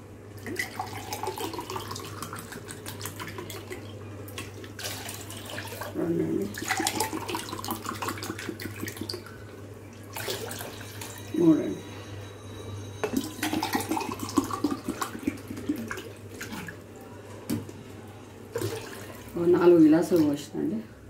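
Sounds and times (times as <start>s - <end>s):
water splashing into a pot: 0.4s - 9.4s, 18.5s - 19.4s
water pouring into a glass: 0.4s - 11.4s, 13.0s - 16.8s.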